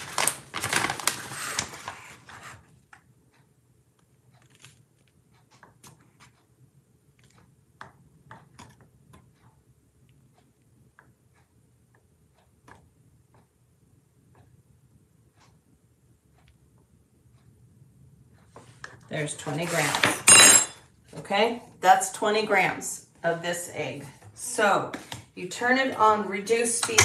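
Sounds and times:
kitchen utensils clicking and tapping: 0:19.8 - 0:20.8, 0:25.8 - 0:27.0.

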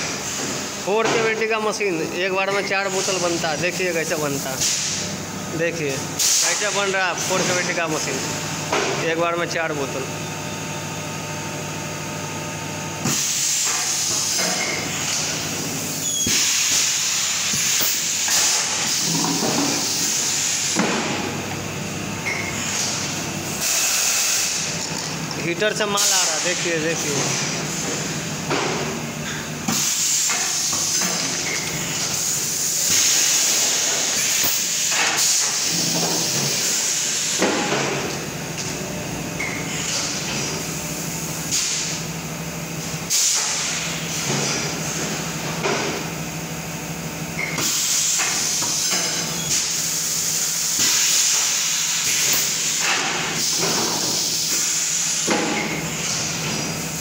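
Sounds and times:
compressed air hissing: 0:13.1 - 0:20.8, 0:22.3 - 0:24.7.

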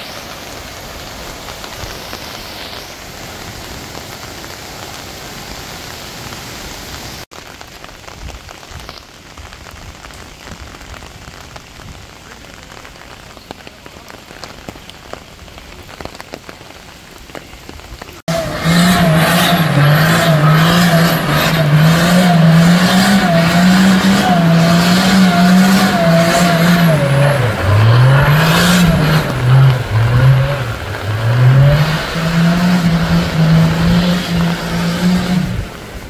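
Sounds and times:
engine revving loudly: 0:18.3 - 0:35.8.

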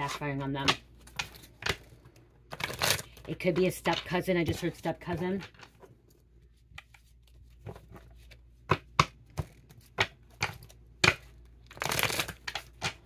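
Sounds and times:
cards shuffling: 0:00.6 - 0:13.0
cards snapping and tapping: 0:08.6 - 0:13.0.

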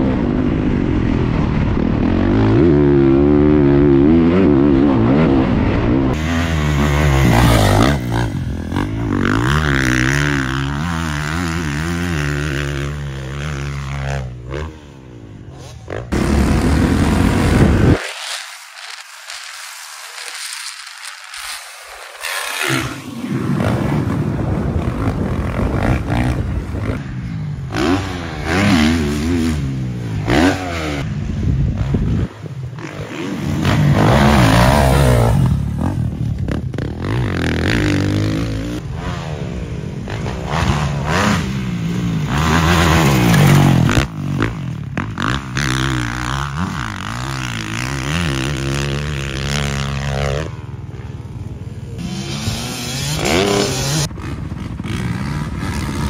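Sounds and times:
dirt bike engine revving: 0:01.5 - 0:20.8, 0:22.0 - 0:56.0.

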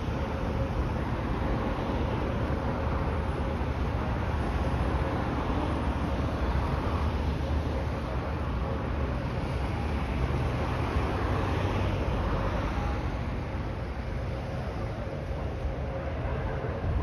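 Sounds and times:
wind noise on microphone: 0:12.9 - 0:17.0.

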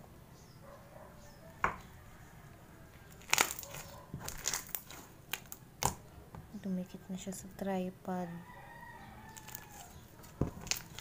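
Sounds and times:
slime popping and crackling: 0:02.9 - 0:06.1, 0:09.3 - 0:11.0.

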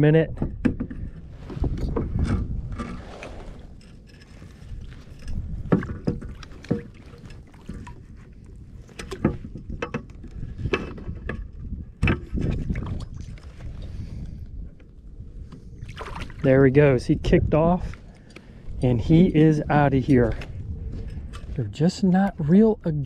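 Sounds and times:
water lapping against kayak: 0:00.5 - 0:19.2.

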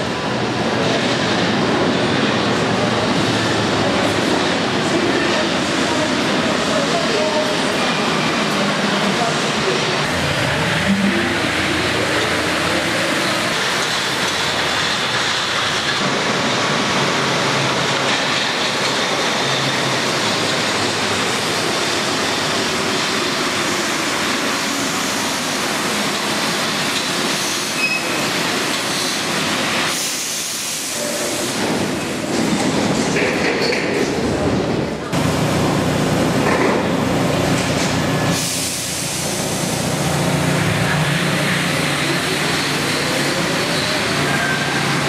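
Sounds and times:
metro train rolling: 0:00.0 - 0:45.0
air brake hiss: 0:38.3 - 0:39.4.

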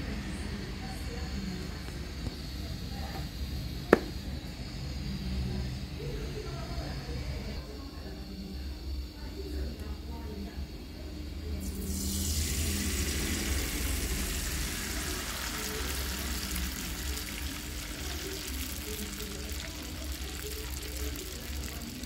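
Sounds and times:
batter sizzling in hot oil: 0:11.4 - 0:22.0.

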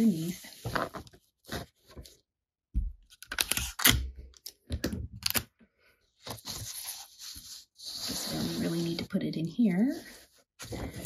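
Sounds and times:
paper rustling: 0:06.2 - 0:09.0, 0:09.9 - 0:11.0.

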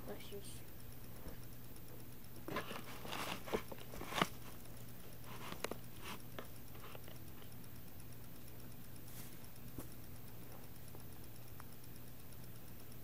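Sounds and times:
steady low hum: 0:00.0 - 0:13.0
handling rustling: 0:02.5 - 0:07.2.

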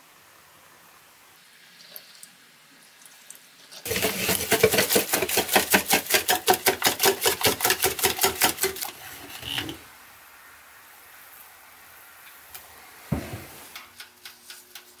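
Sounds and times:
whisk beating batter in bowl: 0:03.9 - 0:09.0.

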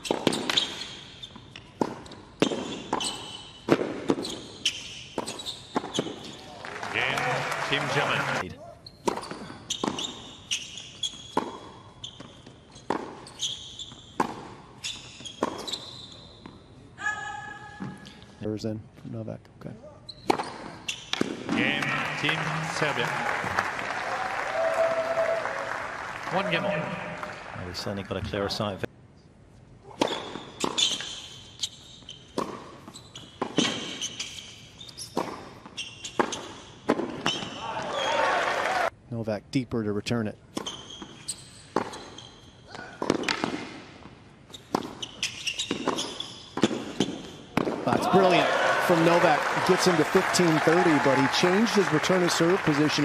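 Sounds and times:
shoes squeaking on court: 0:00.0 - 0:06.5, 0:08.7 - 0:16.8, 0:20.0 - 0:21.3, 0:30.0 - 0:38.0, 0:40.5 - 0:48.3
racket striking tennis ball: 0:01.8 - 0:04.4, 0:11.3 - 0:11.9, 0:32.3 - 0:34.0, 0:35.2 - 0:37.5, 0:43.0 - 0:43.9, 0:44.7 - 0:45.0, 0:45.7 - 0:48.0.

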